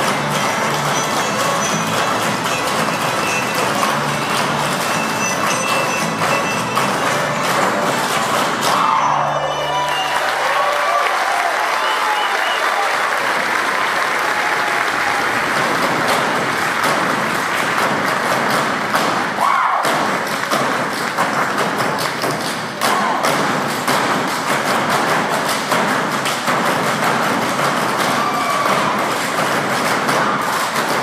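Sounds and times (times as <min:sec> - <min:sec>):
audience applause: 0:00.0 - 0:23.3, 0:27.5 - 0:31.0
clog dancing taps on stage: 0:15.6 - 0:31.0.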